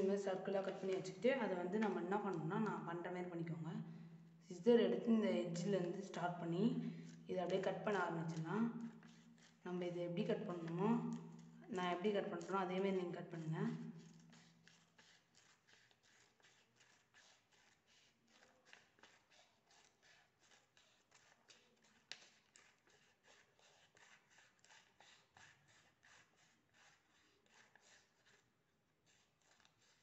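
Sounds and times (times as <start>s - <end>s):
scissors snipping paper: 7.0s - 30.0s.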